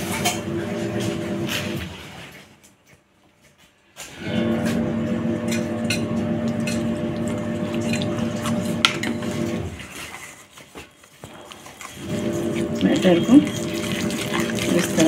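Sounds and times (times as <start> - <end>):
whisk clinking and scraping bowl: 5.5 - 9.4, 11.6 - 15.0.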